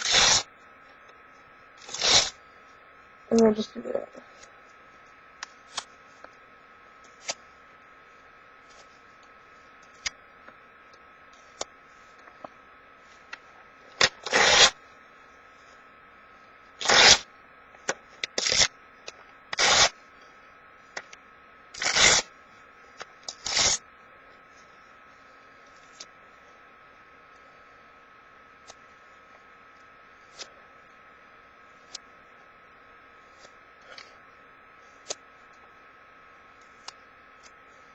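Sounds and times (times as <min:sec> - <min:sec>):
paper tearing: 0:00.0 - 0:00.4, 0:01.8 - 0:02.4, 0:14.0 - 0:14.7, 0:16.8 - 0:17.2, 0:18.4 - 0:18.7, 0:19.5 - 0:19.9, 0:21.8 - 0:22.2, 0:23.3 - 0:23.8.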